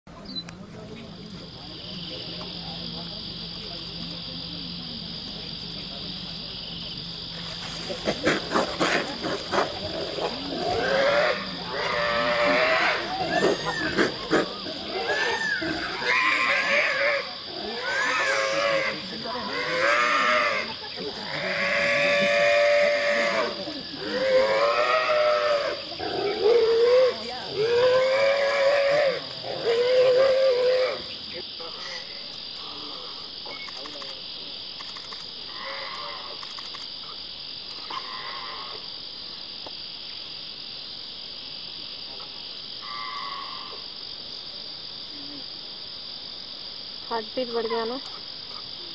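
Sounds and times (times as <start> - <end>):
insects chorus: 0.1 - 48.9
wild boar squealing: 8.1 - 31.1.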